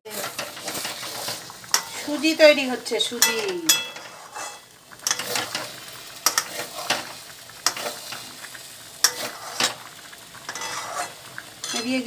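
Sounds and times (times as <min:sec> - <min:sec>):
low frying sizzle: 0:00.0 - 0:12.0
spatula scraping metal pan: 0:00.1 - 0:02.4, 0:03.1 - 0:08.4, 0:09.0 - 0:12.0.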